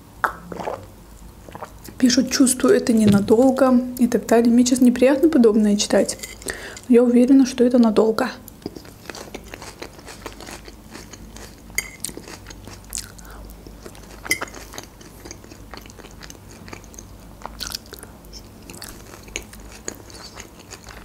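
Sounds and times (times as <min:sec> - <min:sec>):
chewing and crunching salad: 0:08.5 - 0:21.0.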